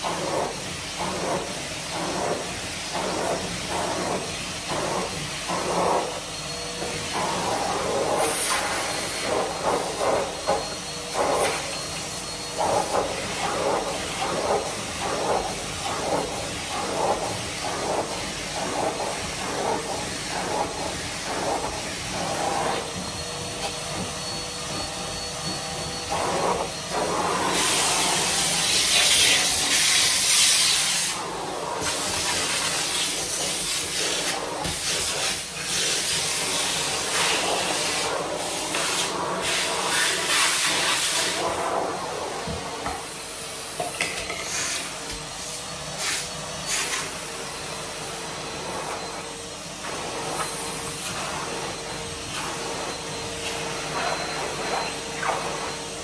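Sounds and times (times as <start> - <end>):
vacuum cleaner running: 0.0 - 56.0
vacuum tool strokes: 44.3 - 56.0.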